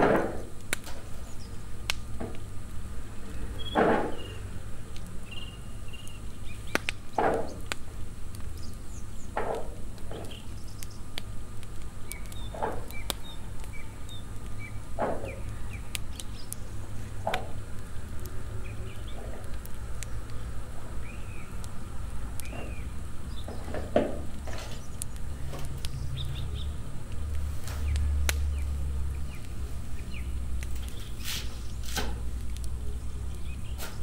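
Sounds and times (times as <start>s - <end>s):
bird chirps: 3.5s - 4.5s, 5.2s - 7.6s, 12.0s - 16.7s, 21.0s - 21.6s, 22.4s - 23.7s, 25.8s - 26.8s.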